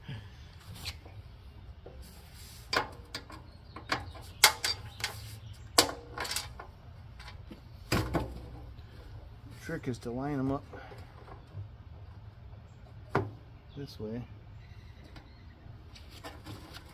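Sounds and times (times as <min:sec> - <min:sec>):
metallic clicks and knocks: 0:02.7 - 0:05.2, 0:05.8 - 0:07.4.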